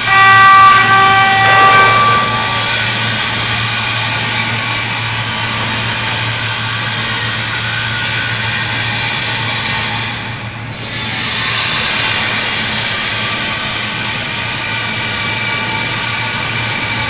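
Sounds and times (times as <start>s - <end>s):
warning horn: 0.0s - 4.3s
overhead crane mechanical drone: 0.0s - 17.0s.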